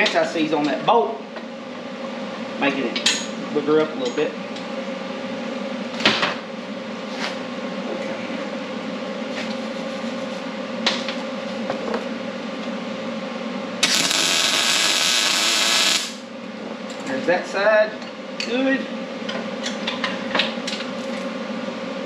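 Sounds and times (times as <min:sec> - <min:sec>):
steady hum: 0:00.0 - 0:19.2
welder arc crackling: 0:13.8 - 0:16.2.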